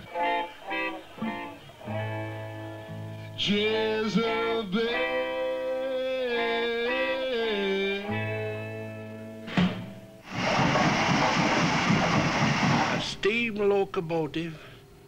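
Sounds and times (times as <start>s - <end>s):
guitar: 0.0s - 15.0s
man singing into a microphone: 3.4s - 8.4s.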